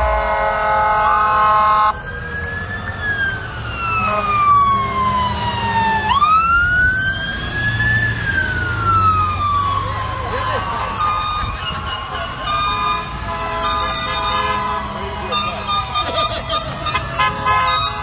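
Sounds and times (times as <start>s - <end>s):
fire truck air horn: 0.0s - 2.0s, 3.8s - 4.7s, 10.8s - 18.0s
siren wailing: 0.0s - 18.0s.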